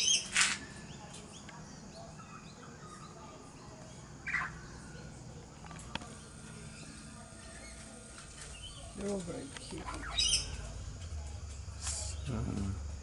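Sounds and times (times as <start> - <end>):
faint parrot chirps: 4.2 - 4.8, 9.8 - 10.7.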